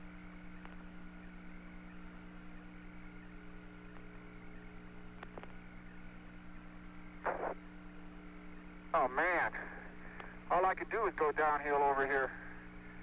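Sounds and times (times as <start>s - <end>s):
radio hum and hiss: 0.0s - 13.0s
burst of static: 7.1s - 7.8s
faint clicks: 10.1s - 10.3s.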